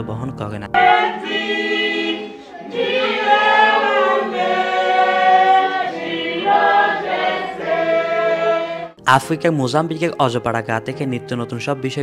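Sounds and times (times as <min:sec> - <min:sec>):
congregation singing a hymn: 0:00.7 - 0:09.0.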